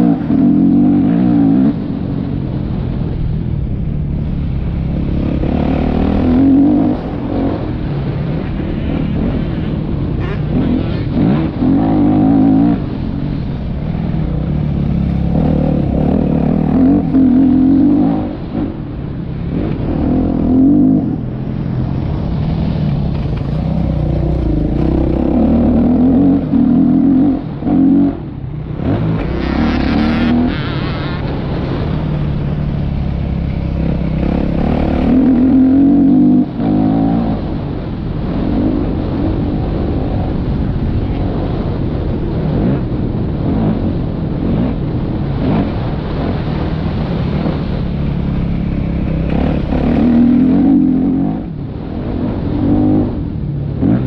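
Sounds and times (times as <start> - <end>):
motocross bike engine revving: 4.9 - 7.9, 8.5 - 13.0, 14.3 - 18.9, 23.1 - 37.6, 43.5 - 51.6.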